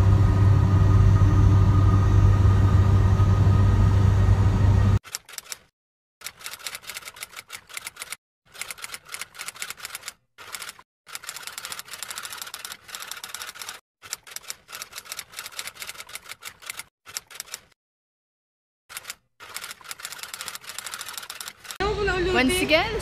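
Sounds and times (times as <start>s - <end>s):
typewriter keys clacking: 5.1s - 17.7s, 18.9s - 21.8s.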